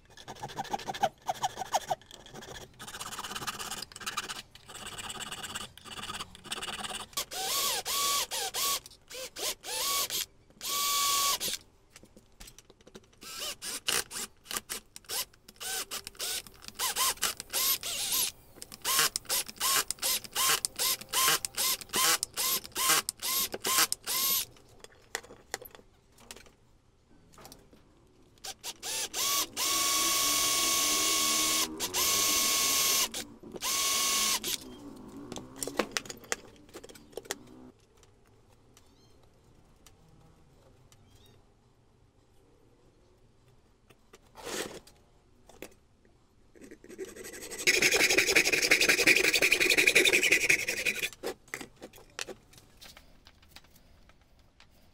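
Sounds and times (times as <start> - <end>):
electric drill whining: 15.1 - 24.4, 28.6 - 35.4.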